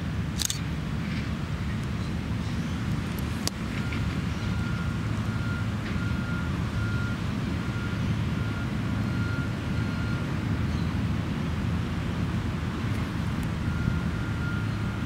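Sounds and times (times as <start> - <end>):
reversing alarm beeping: 3.7 - 10.3, 13.5 - 15.0.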